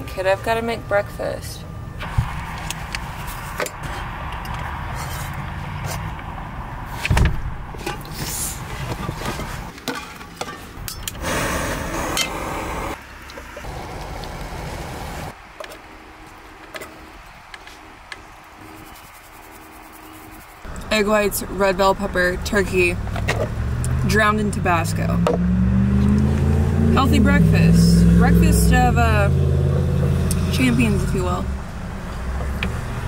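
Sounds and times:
gas stove burner hissing: 11.1s - 13.0s.

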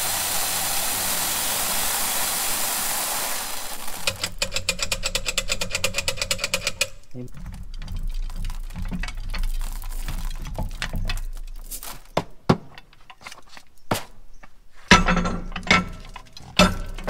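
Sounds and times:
beans trickling into bucket: 0.0s - 4.4s, 7.1s - 12.2s
metallic clanks over bucket: 14.9s - 17.0s.

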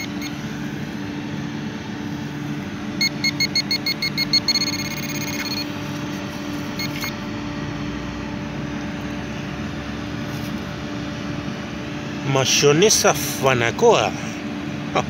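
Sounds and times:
metal detector beeping: 0.0s - 0.5s, 3.0s - 5.8s, 6.7s - 7.2s
steady low hum: 0.0s - 15.0s.

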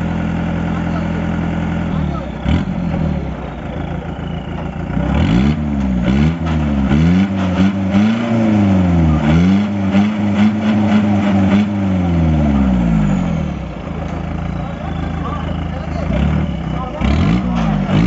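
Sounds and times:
jeep engine revving hard: 2.0s - 3.5s, 4.9s - 13.7s, 16.0s - 18.0s.

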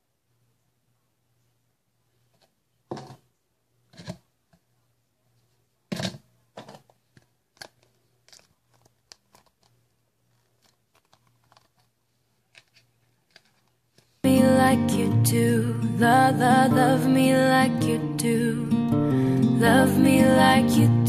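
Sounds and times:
plastic bottle and box handling: 2.4s - 3.2s, 5.9s - 14.2s.

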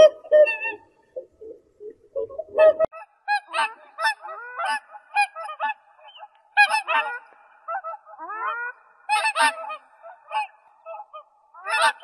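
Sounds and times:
waterfowl honking: 2.5s - 12.0s.

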